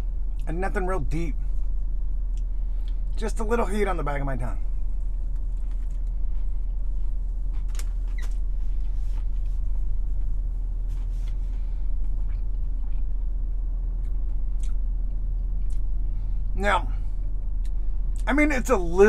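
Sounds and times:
chewing food: 12.0 - 16.0.

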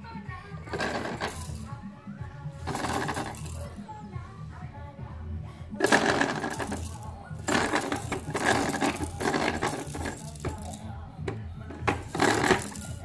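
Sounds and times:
plastic toy rattling: 0.7 - 1.8, 2.6 - 3.8, 5.8 - 13.0.

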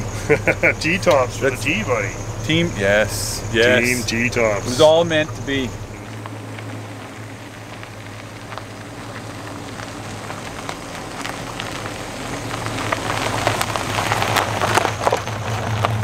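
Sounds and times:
car engine humming: 0.0 - 16.0
tyres crunching on gravel: 0.0 - 16.0.

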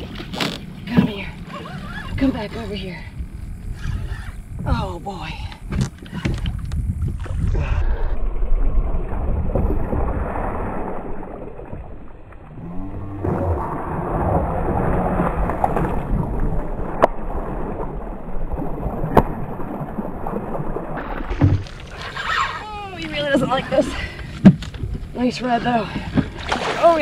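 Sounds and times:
low rumbling noise: 0.0 - 26.8
fish splashing at water surface: 26.2 - 27.0.

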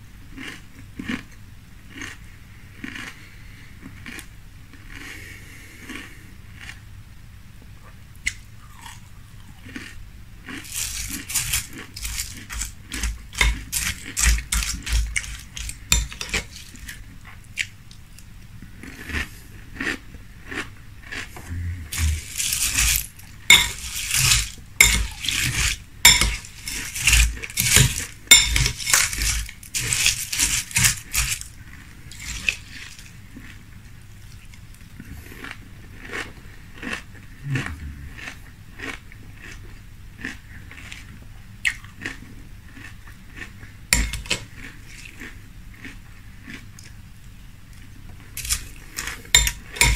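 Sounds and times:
crunchy chewing: 0.3 - 6.8, 8.1 - 49.9
metal spoon clinking on glass bowl: 23.5 - 25.2, 26.1 - 30.0, 44.0 - 44.4, 49.4 - 49.9.

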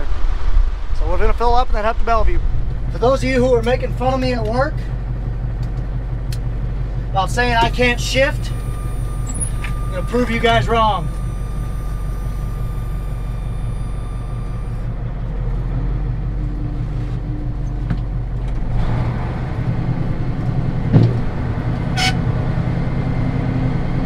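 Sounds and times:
truck engine running: 2.0 - 24.0
clunk: 7.6 - 10.4.

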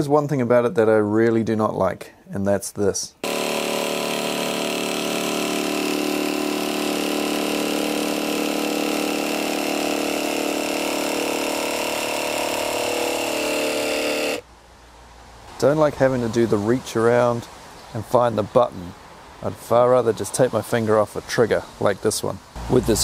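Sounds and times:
jigsaw sawing through board: 3.2 - 14.4.

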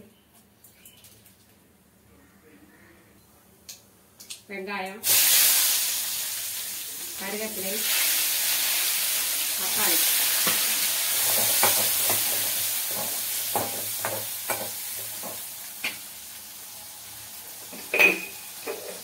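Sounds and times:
vegetables sizzling in hot oil: 5.0 - 19.0.

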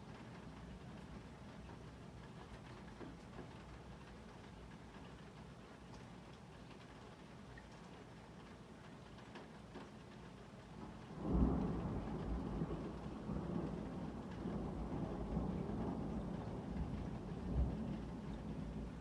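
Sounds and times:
thunder rumbling: 11.0 - 19.0.

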